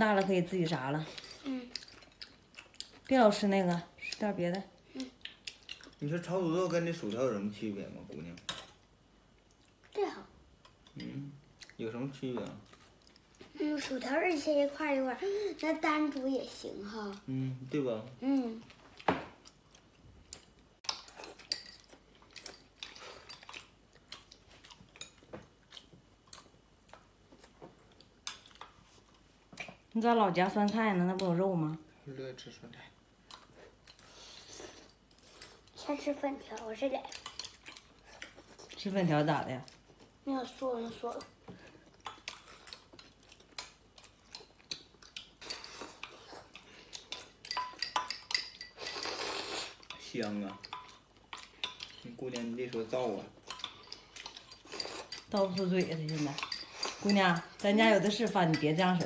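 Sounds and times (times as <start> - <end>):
chewing: 1.0 - 3.1, 3.7 - 6.1, 18.5 - 29.8, 36.4 - 38.9, 41.2 - 59.0
people slurping noodles: 48.8 - 49.8
chopsticks clicking against bowls: 53.5 - 59.0.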